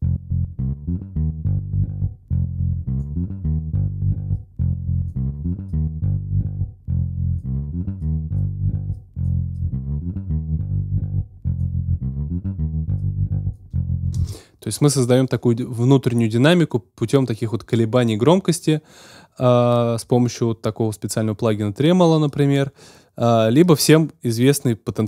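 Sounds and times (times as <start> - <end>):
electric bass with tremolo: 0.0 - 16.6.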